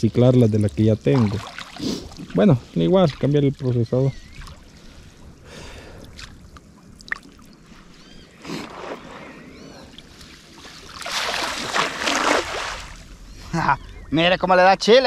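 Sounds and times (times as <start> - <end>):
water splashing and sloshing: 0.0 - 14.1
faint high chirps: 13.2 - 14.8.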